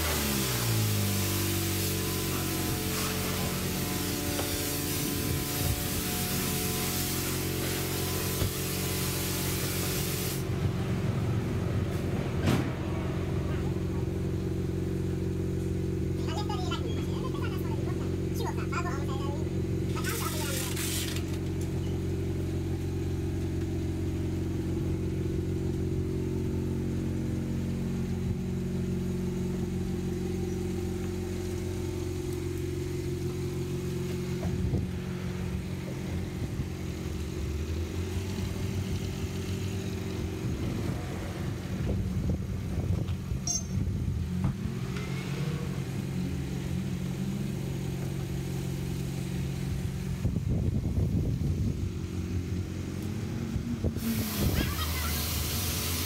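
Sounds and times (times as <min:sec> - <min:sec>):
motor droning: 0:00.0 - 0:11.4, 0:19.6 - 0:56.0
wet rubbing and splashing: 0:20.1 - 0:21.3.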